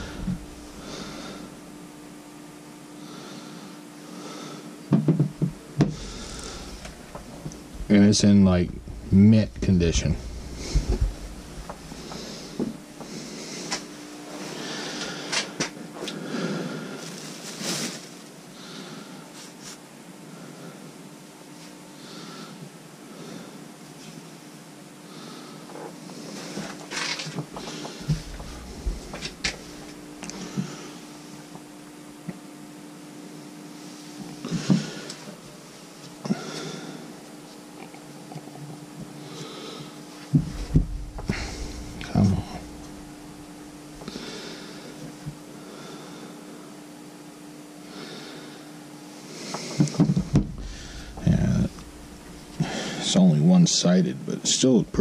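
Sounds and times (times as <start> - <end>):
low thumps: 0.0 - 1.2, 5.0 - 13.1, 28.0 - 30.0, 40.3 - 44.2, 50.1 - 52.8
faint steady hum: 0.0 - 55.0
rustling: 26.4 - 30.8.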